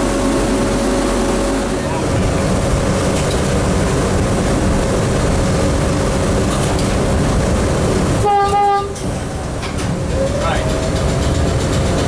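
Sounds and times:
train wheels rumbling: 0.0 - 12.0
locomotive horn blast: 8.2 - 9.0.

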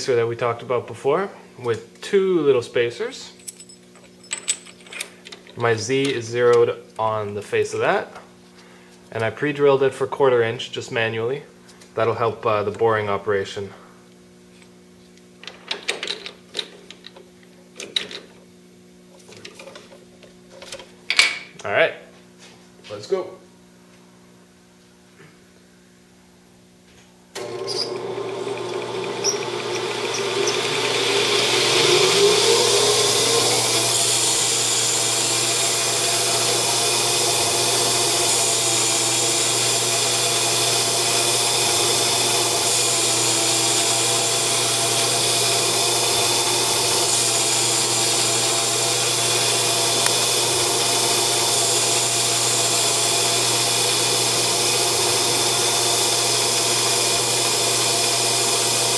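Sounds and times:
metal lathe spindle whining: 27.4 - 58.9.

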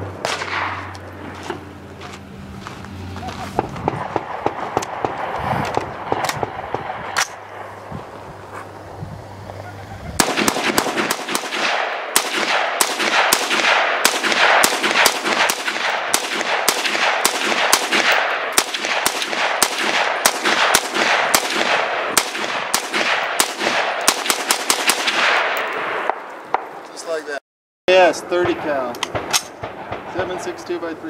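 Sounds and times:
rifle shots: 0.2 - 1.4, 3.9 - 7.8, 10.2 - 26.8, 28.3 - 30.6.

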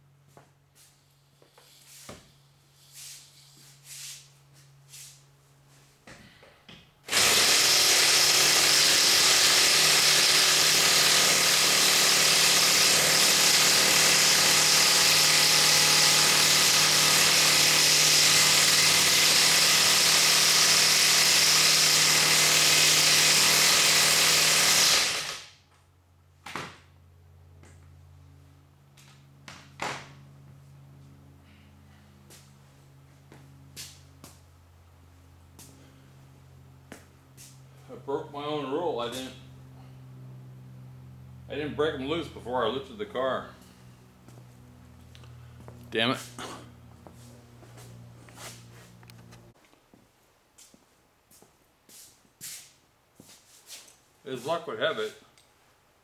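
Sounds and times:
hydraulic pump motor whine: 7.1 - 25.5.

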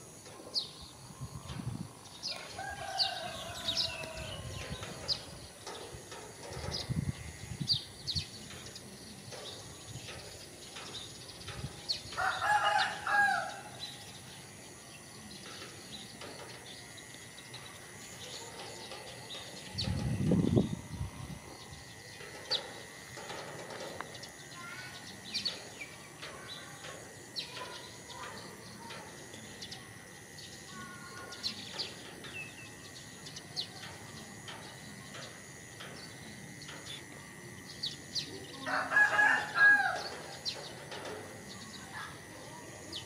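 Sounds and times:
small birds chirping: 0.0 - 43.0
rooster crowing: 2.3 - 4.6, 12.2 - 13.8, 38.6 - 40.4.

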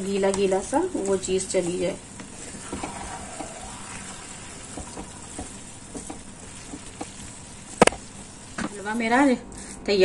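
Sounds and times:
food sizzling in a pan: 0.0 - 9.4
wooden spatula tapping and scraping: 4.7 - 8.8.

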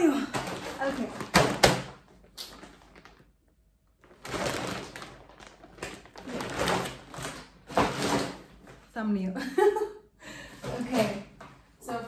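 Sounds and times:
plastic bag rustling: 0.4 - 8.9.

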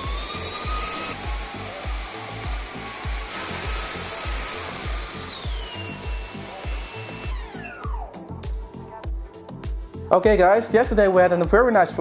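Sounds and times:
electric fan whining: 0.0 - 8.9
background music with bass beat: 0.1 - 12.0.

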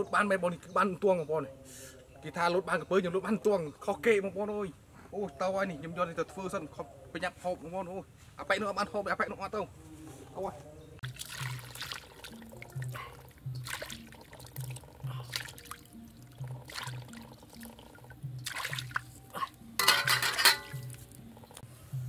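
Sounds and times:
soft background music: 0.0 - 22.0
water splashing in a wok: 11.0 - 19.2.

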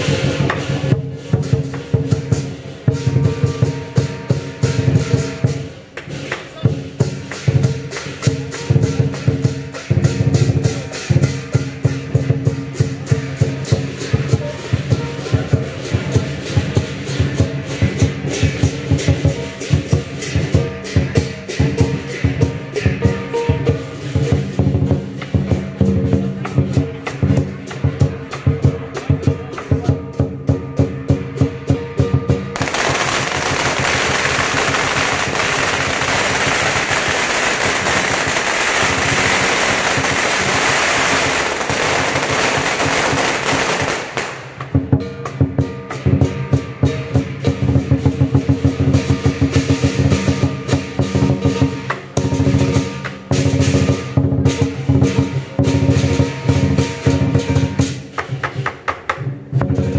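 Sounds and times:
firecrackers banging: 0.0 - 59.9
music with steady beat: 0.0 - 59.9.

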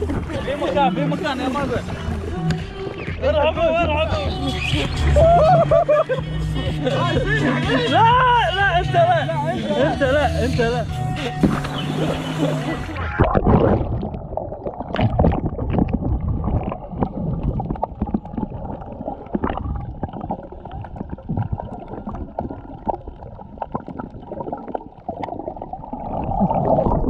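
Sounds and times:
muffled underwater sloshing: 11.2 - 27.0.

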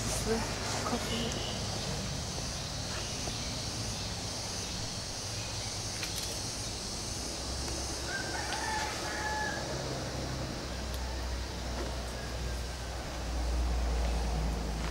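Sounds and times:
steady high hiss: 0.0 - 14.9
rooster crowing: 7.9 - 13.1.

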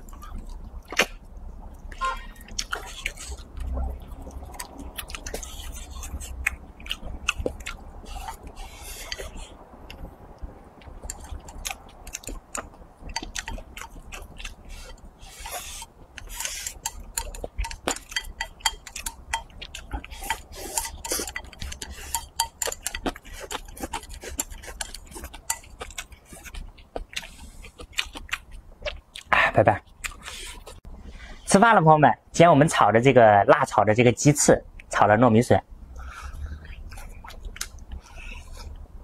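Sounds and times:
chewing: 0.0 - 30.9, 36.0 - 38.9
chopsticks clicking on ceramic bowl: 16.4 - 26.1.

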